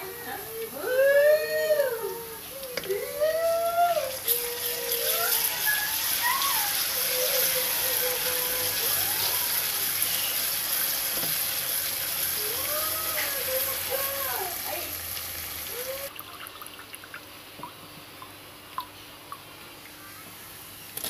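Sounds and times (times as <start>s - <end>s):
steady hiss: 0.0s - 16.1s.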